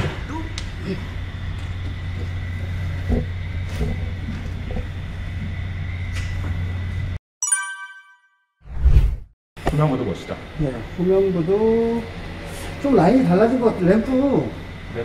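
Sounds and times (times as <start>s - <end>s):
short bright chime: 7.4s - 8.5s.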